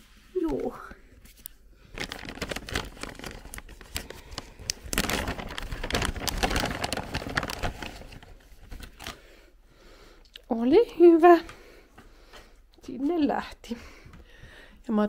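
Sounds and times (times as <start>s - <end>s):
plastic bag crinkling: 1.8s - 9.3s.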